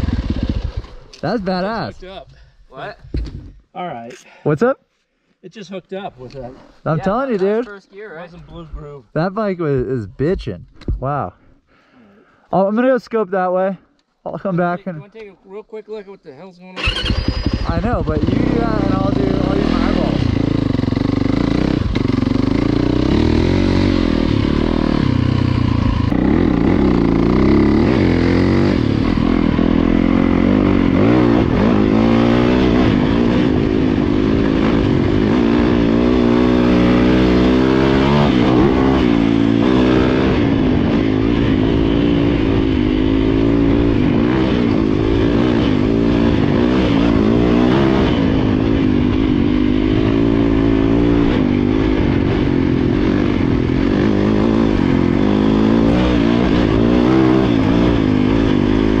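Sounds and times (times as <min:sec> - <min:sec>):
dirt bike engine revving: 0:00.0 - 0:01.1, 0:16.8 - 0:59.0.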